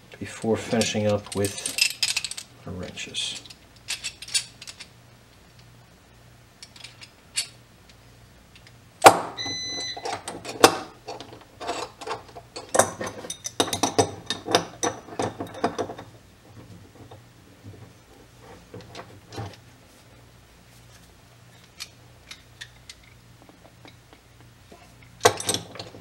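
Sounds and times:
wrenches clinking on pipe fittings: 0.7 - 2.5, 9.7 - 16.1, 25.0 - 26.0.

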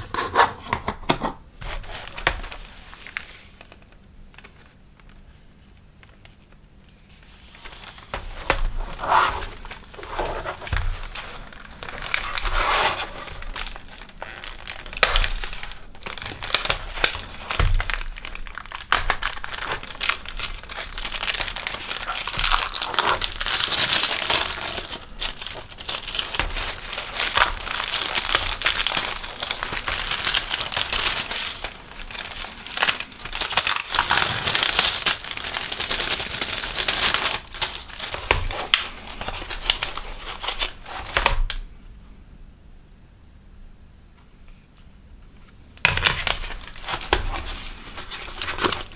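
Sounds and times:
plastic bag crinkling: 7.5 - 41.6, 45.8 - 48.9.

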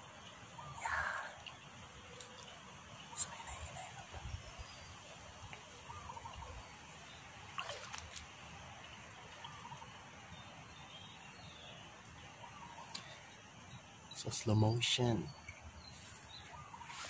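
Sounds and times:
wind rumble on microphone: 3.4 - 4.8.

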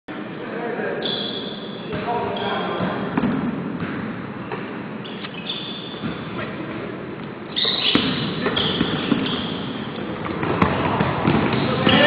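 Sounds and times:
sneakers squeaking on hardwood floor: 1.0 - 12.0
basketballs bouncing: 1.9 - 4.9, 5.6 - 12.0.

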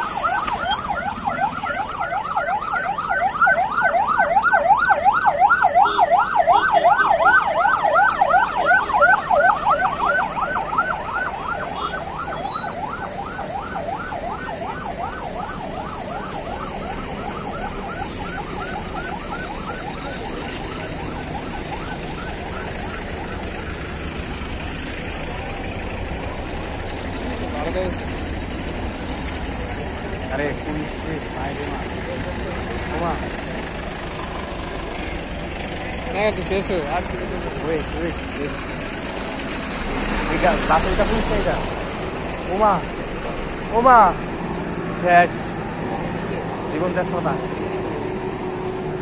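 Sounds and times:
fast yelping siren: 0.0 - 24.7
passing trucks: 0.0 - 49.0.

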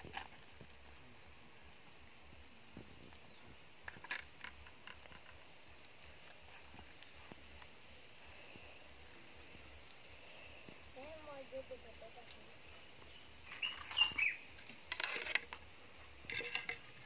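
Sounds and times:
faint high chirring: 13.0 - 15.6.

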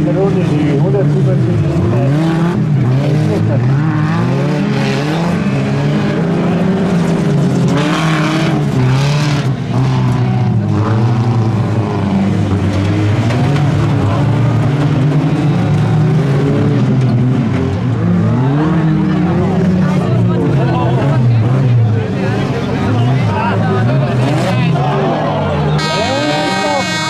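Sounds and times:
racing car engines revving: 0.0 - 27.0.

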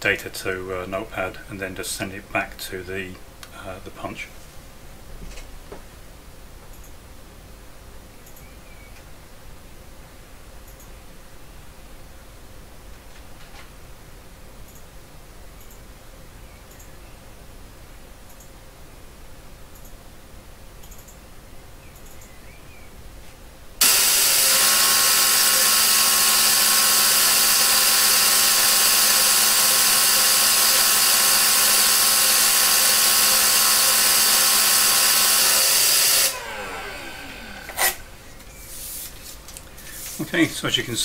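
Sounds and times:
sharp click: 8.2 - 9.1, 10.7 - 11.0, 20.8 - 21.2, 21.9 - 22.4
paper tape punch buzzing: 23.8 - 38.1.

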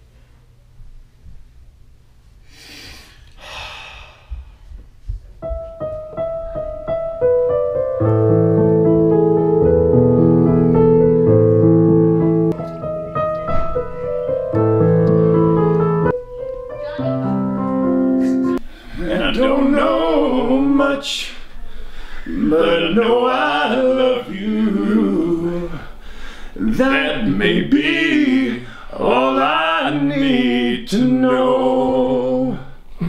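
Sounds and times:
digital piano chords: 5.4 - 18.6.

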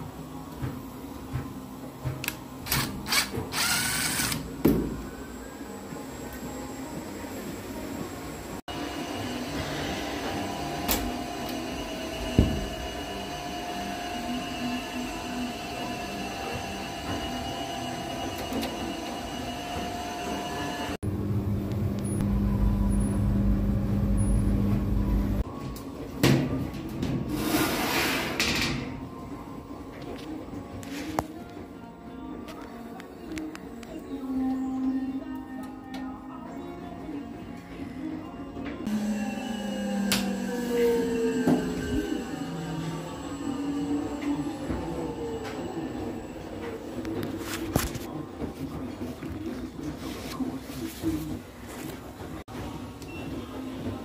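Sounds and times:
mechanical hum: 0.0 - 54.0
deep rumble: 21.1 - 25.4.

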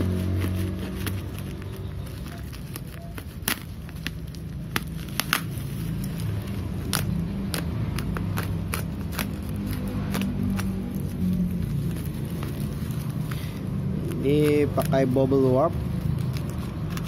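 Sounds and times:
knife slicing bubble wrap: 0.0 - 17.0
plastic crinkling: 0.0 - 17.0
bubble wrap pops and clicks: 2.2 - 11.0.

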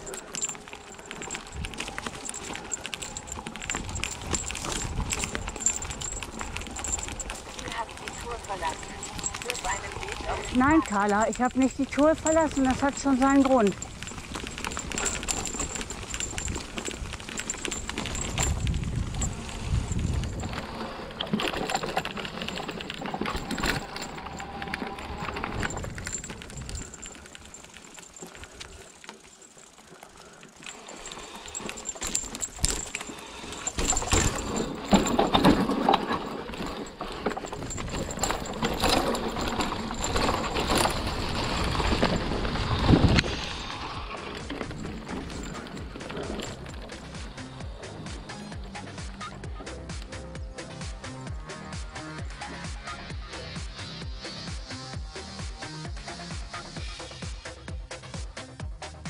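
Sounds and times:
bike clattering over roots: 0.0 - 50.2
wind on microphone: 3.2 - 8.1, 13.8 - 21.0, 37.5 - 45.4.

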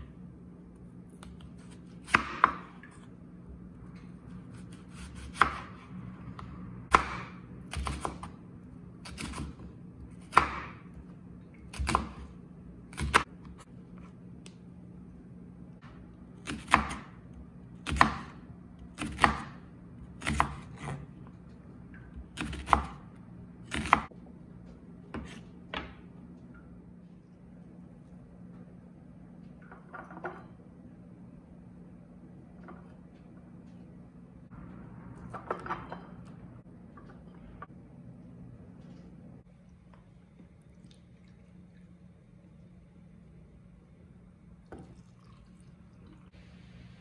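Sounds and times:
steady low hum: 0.0 - 47.0
knife chopping on wooden board: 1.2 - 2.8, 4.5 - 5.8, 6.9 - 8.3, 10.2 - 10.8.

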